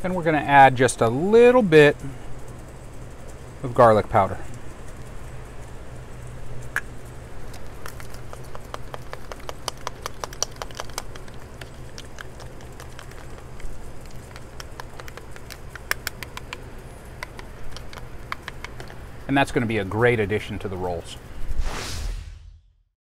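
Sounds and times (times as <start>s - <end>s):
steady low hum: 0.0s - 23.0s
utensil clicking against bowl: 6.7s - 19.0s.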